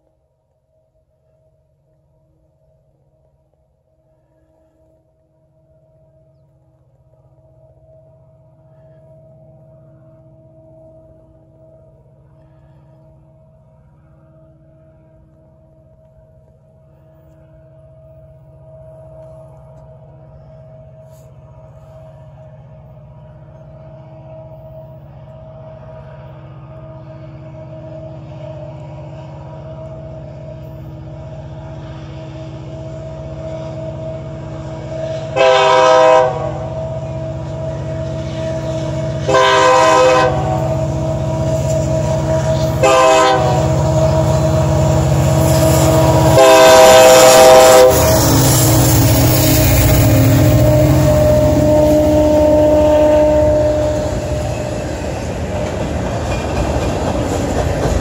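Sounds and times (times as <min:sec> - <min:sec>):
locomotive rumble: 0:06.4 - 0:58.0
train horn: 0:31.6 - 0:55.8.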